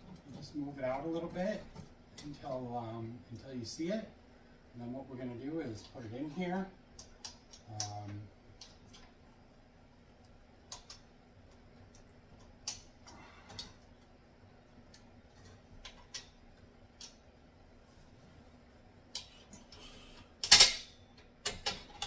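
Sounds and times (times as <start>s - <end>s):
metal bolt clicking and tapping: 20.4s - 22.0s.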